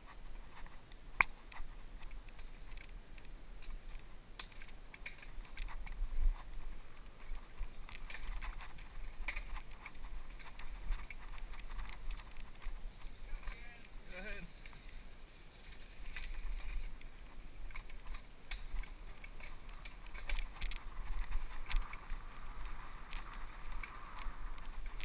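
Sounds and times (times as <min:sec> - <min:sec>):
bike rattling over bumpy trail: 0:00.0 - 0:25.0
wind rumble on microphone: 0:05.2 - 0:14.0, 0:15.0 - 0:25.0.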